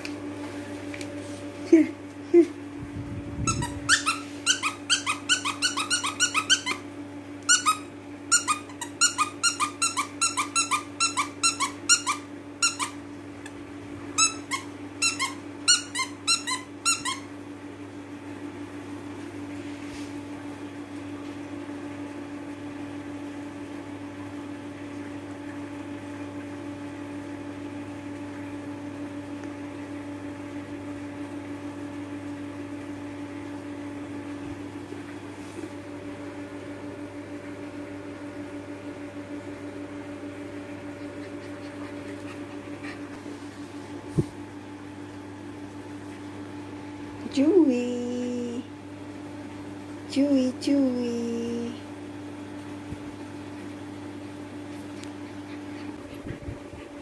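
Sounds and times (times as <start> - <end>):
steady low hum: 0.0 - 57.0
dog toy squeaking: 3.4 - 6.8, 7.5 - 13.0, 14.2 - 17.3.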